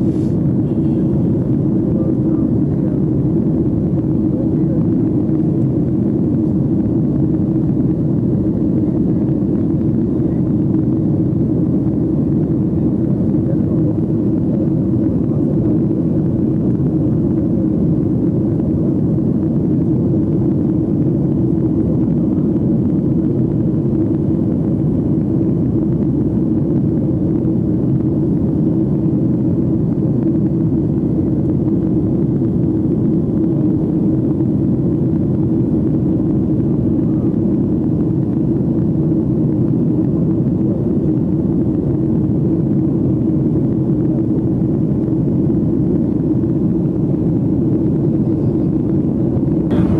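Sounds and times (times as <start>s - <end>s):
jet engine and airflow drone: 0.0s - 49.9s.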